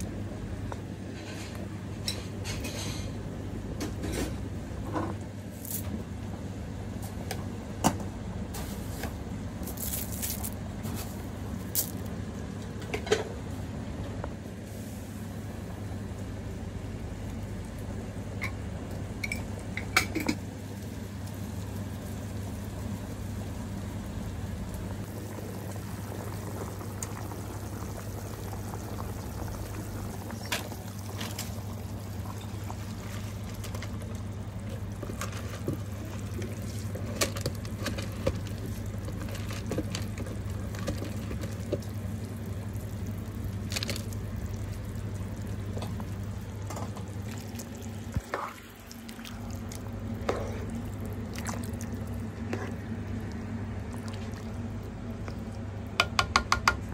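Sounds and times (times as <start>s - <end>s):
broth bubbling: 24.5s - 56.0s.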